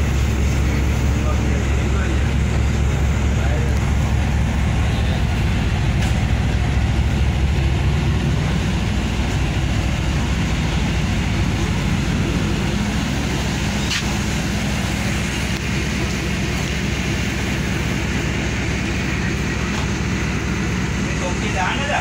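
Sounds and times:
train engine drone: 0:00.0 - 0:22.0.

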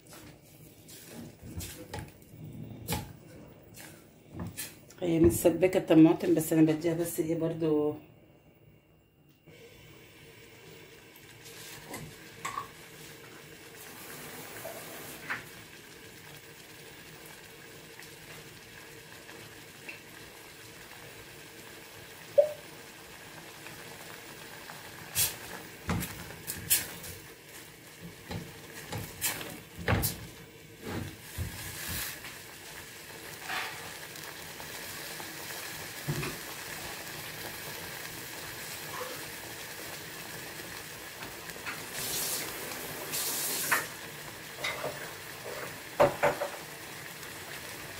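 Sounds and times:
sauce simmering and bubbling: 0:09.5 - 0:47.9.

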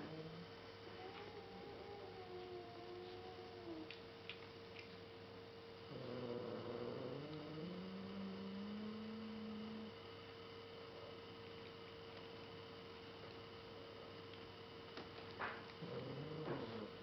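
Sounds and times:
cat growling: 0:00.0 - 0:04.9, 0:05.9 - 0:10.0, 0:15.5 - 0:17.0
electrical hum: 0:00.0 - 0:17.0.

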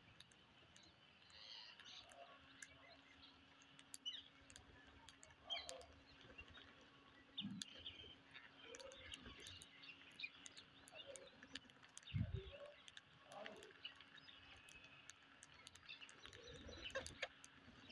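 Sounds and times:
small sharp clicks: 0:00.0 - 0:17.9
parakeets chirping: 0:07.4 - 0:17.9.

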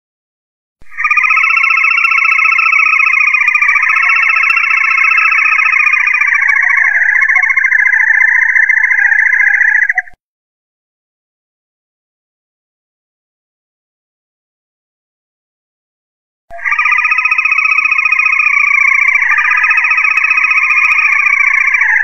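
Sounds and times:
loud buzzing trill: 0:00.9 - 0:10.0, 0:16.6 - 0:22.0.

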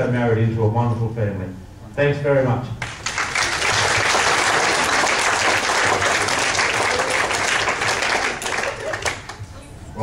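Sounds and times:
room of guests applauding: 0:02.8 - 0:09.5.

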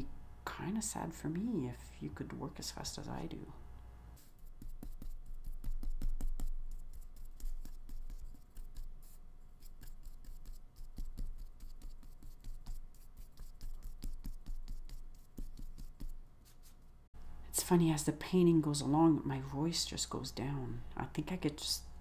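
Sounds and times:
paintbrush scratching on paper: 0:04.2 - 0:17.0.

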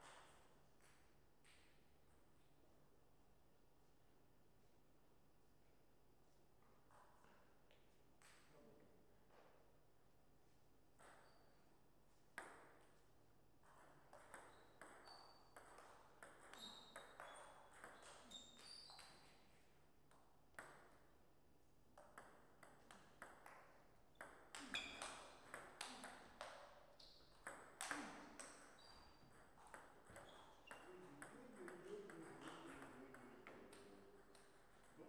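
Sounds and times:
table tennis ball hits: 0:13.6 - 0:19.3, 0:22.0 - 0:35.0.

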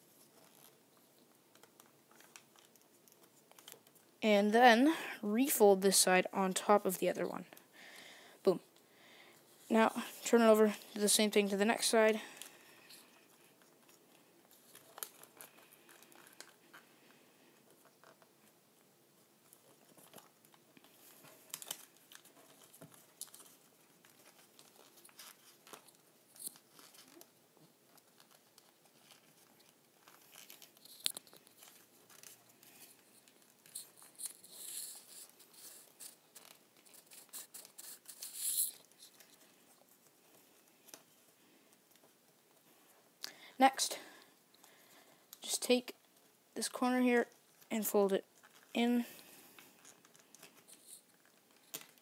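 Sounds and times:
paper being folded and creased: 0:00.0 - 0:04.2, 0:13.5 - 0:17.1, 0:19.4 - 0:42.5, 0:46.2 - 0:52.0.

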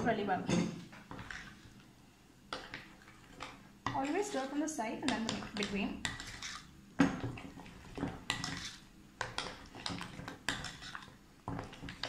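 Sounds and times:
spoon scraping glass bowl: 0:05.1 - 0:06.7, 0:08.0 - 0:09.5.

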